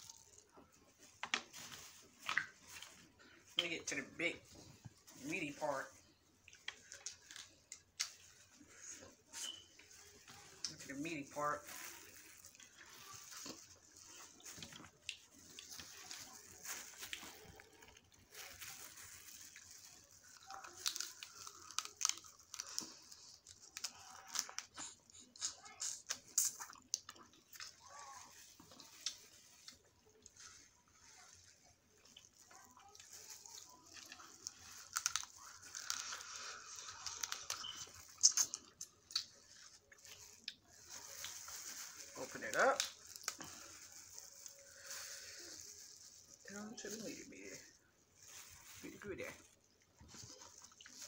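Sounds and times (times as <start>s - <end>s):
plastic gloves crinkling: 0.0s - 51.0s
wet chewing: 1.3s - 3.4s, 6.0s - 10.9s, 11.6s - 46.5s, 49.4s - 51.0s
crab shell cracking: 20.6s - 24.8s, 34.4s - 36.2s.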